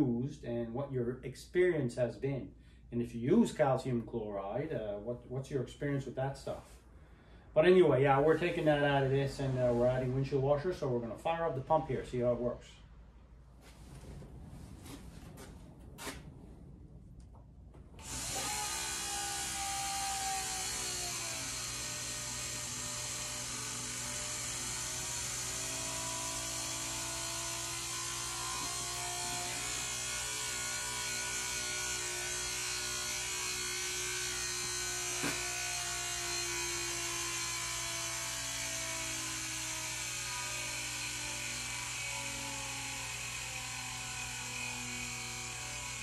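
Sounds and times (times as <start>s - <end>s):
electric pump motor humming: 18.0s - 42.4s.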